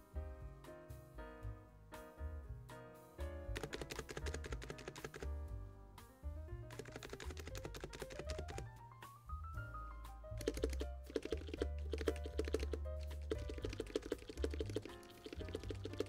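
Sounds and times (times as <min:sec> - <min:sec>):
background music: 0:00.0 - 0:16.0
keyboard keystrokes: 0:03.6 - 0:05.3, 0:06.7 - 0:08.7, 0:10.4 - 0:16.0.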